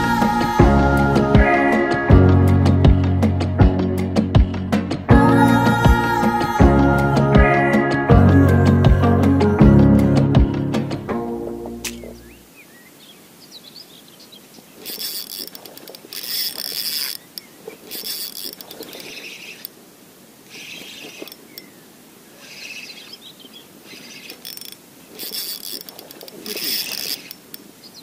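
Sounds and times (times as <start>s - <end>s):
faint bird chirps: 11.9s - 15.4s, 17.0s - 19.7s, 20.5s - 28.0s
spinning reel whirring: 14.8s - 19.7s, 20.5s - 21.7s, 23.8s - 27.6s.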